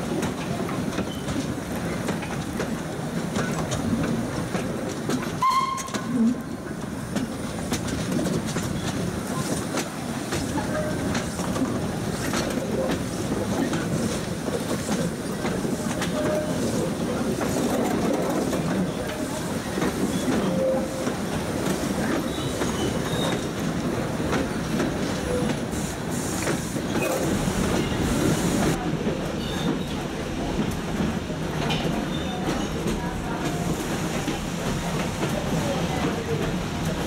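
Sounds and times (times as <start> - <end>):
train wheels clattering on rails: 0.0 - 37.0
wheel squeals: 22.3 - 23.5.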